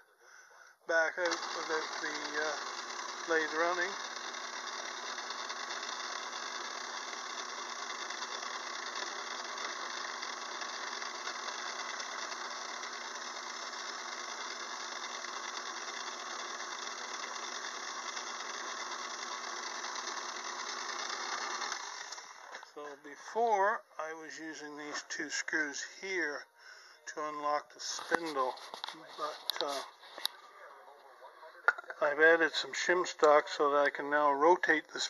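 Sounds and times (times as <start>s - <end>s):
metal lathe whirring: 1.0s - 22.7s.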